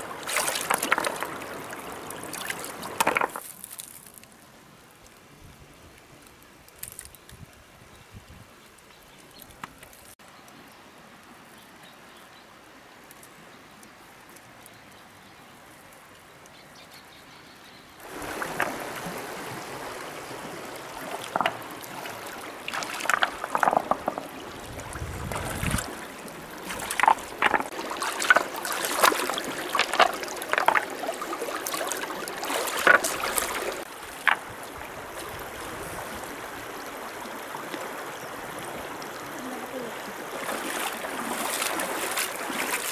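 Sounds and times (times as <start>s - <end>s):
water splashing and running: 0.0s - 4.5s, 18.0s - 42.9s.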